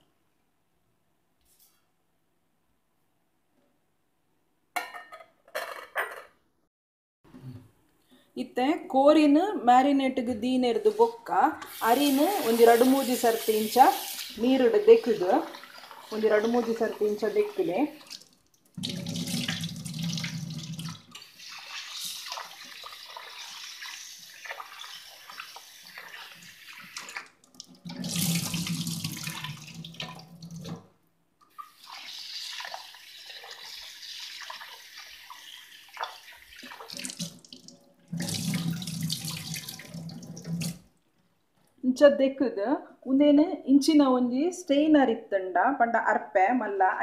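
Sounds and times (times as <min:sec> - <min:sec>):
water poured into sink: 0:11.7 - 0:30.9, 0:31.5 - 0:40.9.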